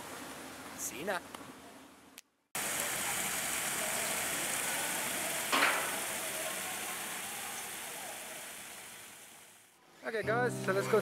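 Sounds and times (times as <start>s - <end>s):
louder water splash: 2.6s - 9.5s
small waterfall splashing: 2.6s - 9.7s.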